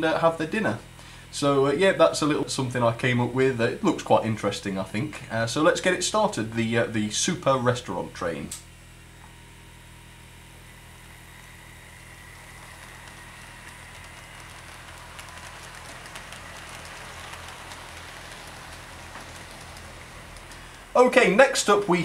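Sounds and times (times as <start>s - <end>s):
model train rolling rush: 0.0s - 8.4s, 10.6s - 22.0s
clicks over rail joints: 12.5s - 21.0s.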